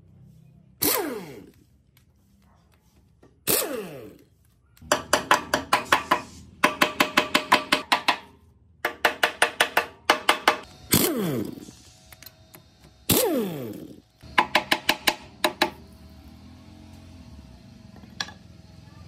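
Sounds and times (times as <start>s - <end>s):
hammer striking metal: 4.9s - 10.7s.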